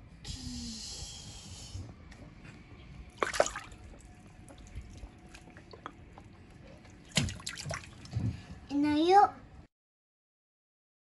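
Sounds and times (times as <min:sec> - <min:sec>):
water splashing: 0:03.1 - 0:08.1.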